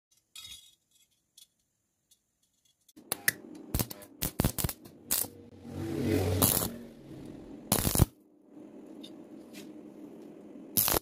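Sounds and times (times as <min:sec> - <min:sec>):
welding arc crackling pops: 0:03.0 - 0:05.3, 0:06.4 - 0:06.7, 0:07.7 - 0:08.2, 0:10.8 - 0:11.0.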